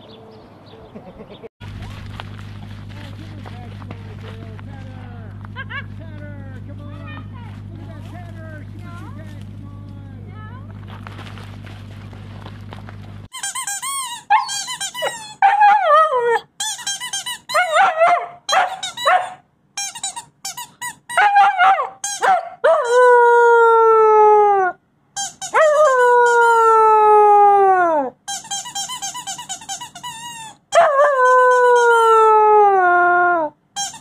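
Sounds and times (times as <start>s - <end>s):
puppy whines and yips: 13.9s - 19.4s
puppy howling: 14.2s - 16.5s, 21.2s - 24.8s, 25.5s - 28.2s, 30.7s - 33.6s.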